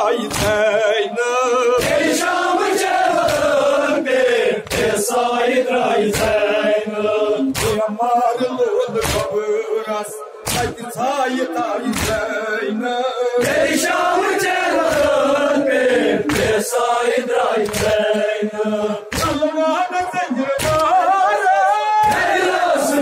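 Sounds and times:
men chanting together: 0.0 - 23.0
hands slapping chests: 0.3 - 0.6, 1.8 - 3.6, 4.6 - 5.0, 6.0 - 6.4, 7.5 - 7.8, 9.0 - 9.4, 10.5 - 10.8, 11.9 - 12.3, 14.7 - 15.3, 16.2 - 16.7, 17.6 - 18.3, 19.1 - 19.4, 20.6 - 21.0, 22.0 - 22.5.

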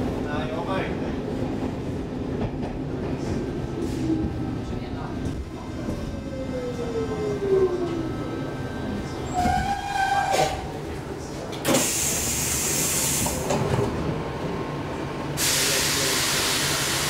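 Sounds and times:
compressed-air hiss: 15.4 - 17.0.

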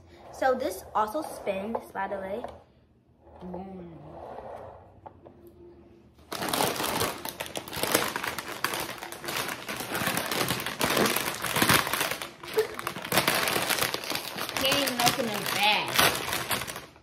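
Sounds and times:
plastic snack bag crinkling: 6.2 - 17.0.

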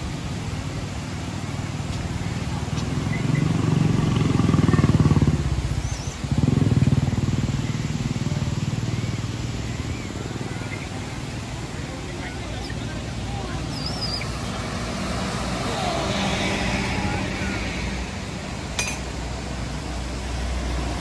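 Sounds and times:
vehicle engine passing: 2.5 - 9.5, 12.7 - 21.0.

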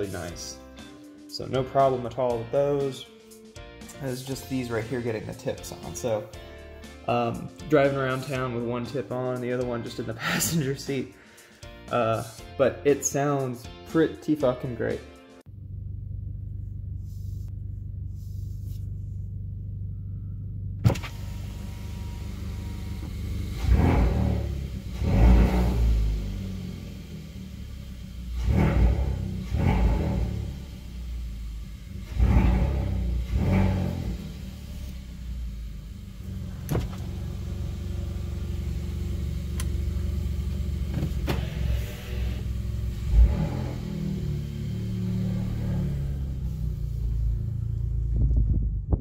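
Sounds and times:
car engine running: 15.5 - 49.0.

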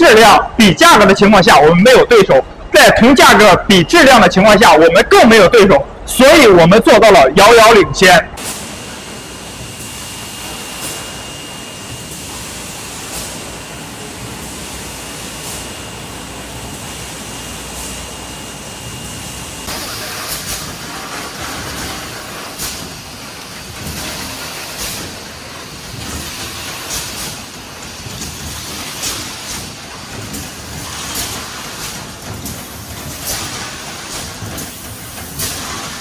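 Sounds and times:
bottling machinery running: 8.4 - 36.0.

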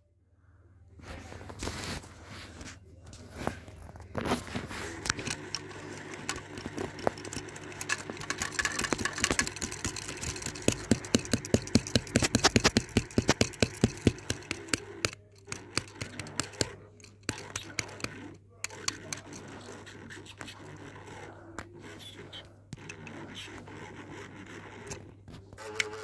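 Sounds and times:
toy cars clattering: 4.1 - 20.3.

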